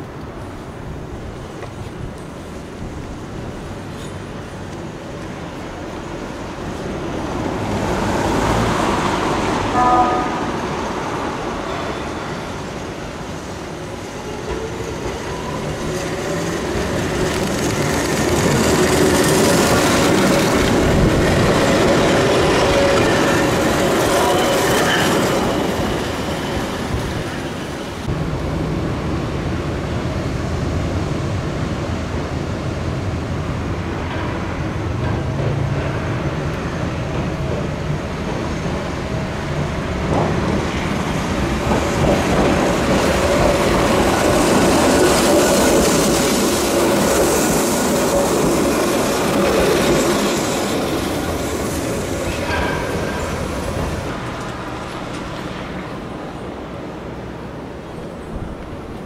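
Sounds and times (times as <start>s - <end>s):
train wheels rumbling and rattling: 0.0s - 59.0s
train horn toot: 9.7s - 10.7s.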